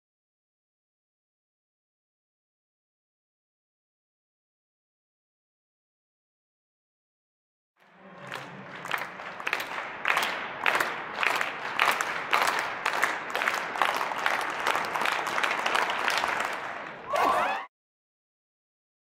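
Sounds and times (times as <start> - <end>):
crowd clapping in rhythm: 7.8 - 17.6
crowd cheering: 7.8 - 17.7.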